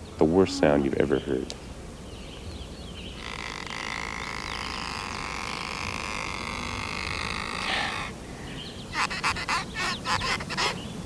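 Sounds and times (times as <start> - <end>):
scratchy squeaky fiddle tone: 3.2 - 8.2, 8.9 - 10.8.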